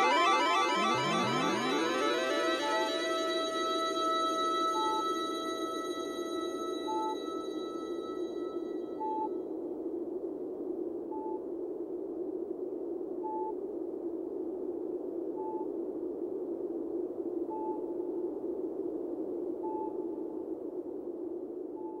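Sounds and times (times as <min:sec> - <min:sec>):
steady droning noise: 0:00.0 - 0:09.0
short high beep: 0:00.0 - 0:09.2.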